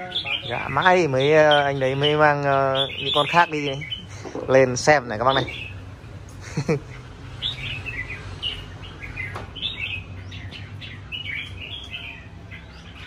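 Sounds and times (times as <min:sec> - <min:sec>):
birds chirping and calling: 0:00.0 - 0:13.0.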